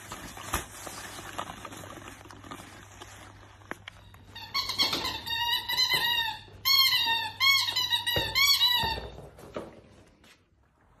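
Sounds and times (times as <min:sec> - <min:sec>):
rubber toy squeaking: 0:04.0 - 0:09.1.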